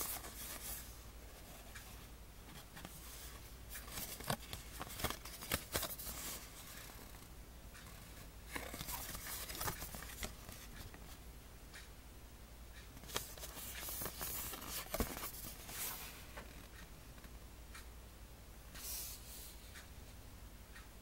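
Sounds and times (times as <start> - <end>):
paper rustling and tapping: 2.5 - 7.2, 8.5 - 11.2, 13.0 - 16.5.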